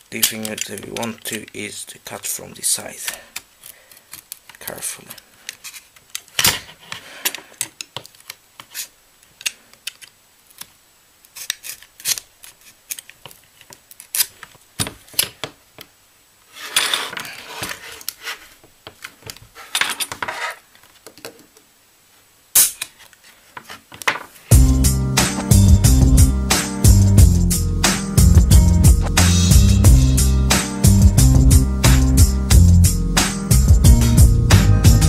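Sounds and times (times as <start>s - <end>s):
knife scraping plastic casing: 11.3s - 14.4s.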